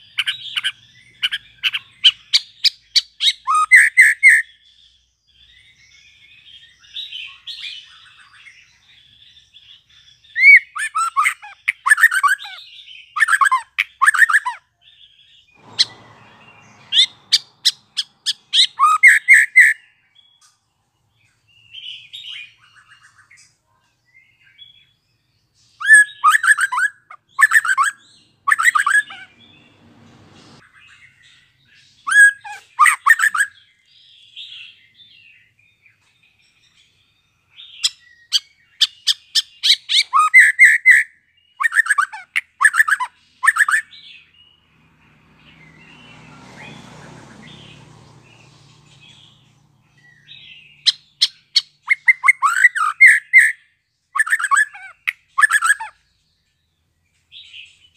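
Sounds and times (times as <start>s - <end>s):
bird singing rapid whistles: 0.0s - 4.7s, 9.4s - 14.6s, 15.4s - 20.0s, 25.8s - 31.2s, 32.0s - 33.6s, 37.7s - 44.3s, 47.4s - 56.0s.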